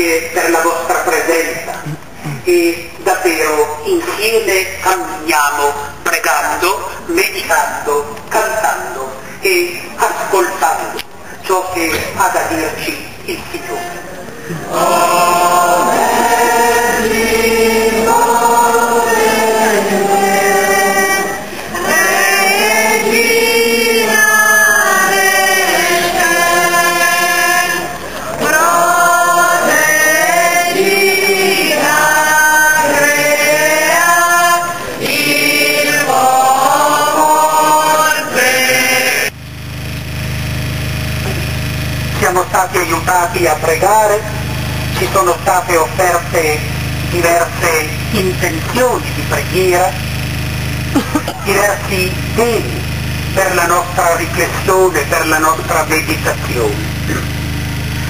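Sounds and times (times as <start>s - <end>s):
steady low hum: 0.0s - 58.0s
crowd singing a hymn: 11.8s - 39.4s.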